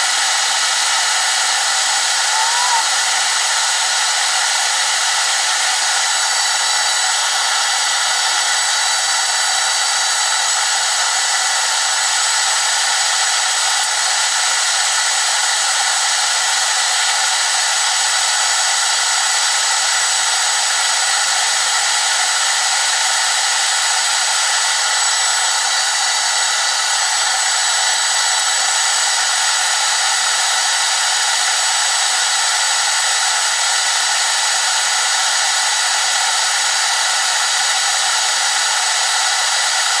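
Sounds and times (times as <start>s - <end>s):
metal lathe whining: 0.0s - 18.1s, 18.8s - 30.9s.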